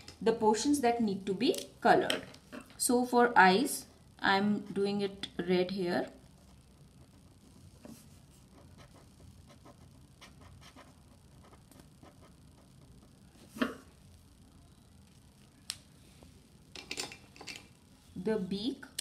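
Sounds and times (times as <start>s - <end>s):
pen scratching on paper: 6.4s - 13.5s.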